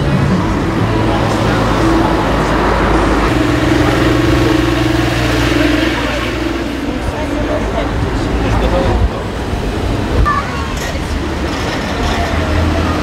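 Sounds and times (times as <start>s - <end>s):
vehicle engine running: 0.0s - 10.2s.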